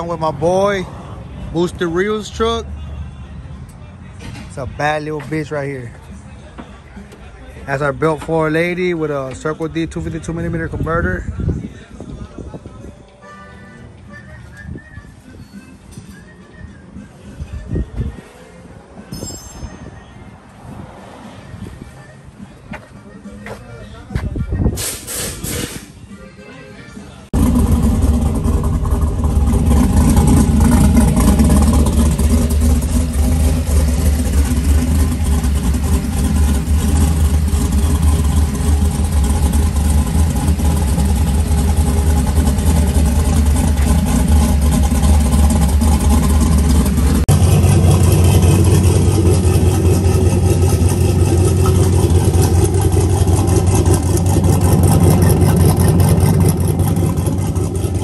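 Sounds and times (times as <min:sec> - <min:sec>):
pickup engine idling: 0:27.3 - 0:58.0.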